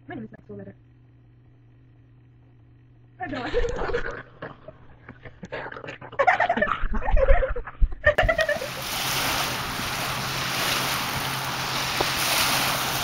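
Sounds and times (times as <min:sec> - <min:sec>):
faint low hum: 0:00.0 - 0:12.6
steady rushing hiss: 0:08.5 - 0:13.0.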